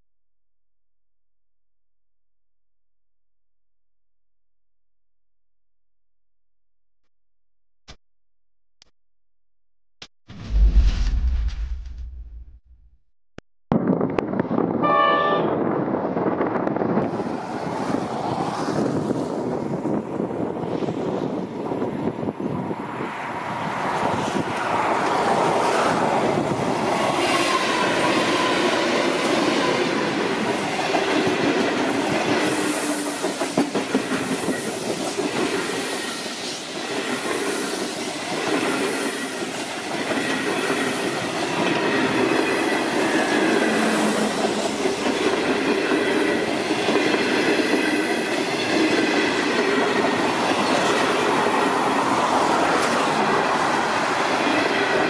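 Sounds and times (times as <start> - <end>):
diesel locomotive passing: 14.8 - 55.0.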